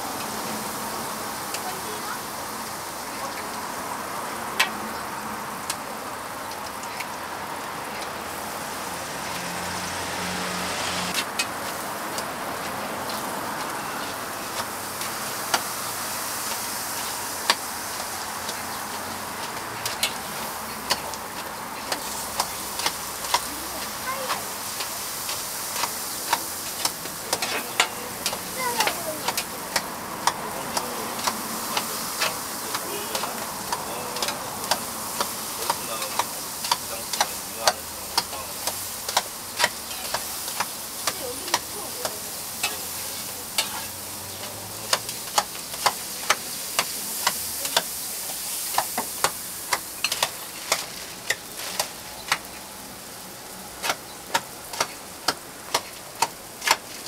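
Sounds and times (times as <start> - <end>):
toast sizzling on griddle: 0.0 - 57.0
utensils tapping and clicking: 17.4 - 52.6, 53.8 - 56.9.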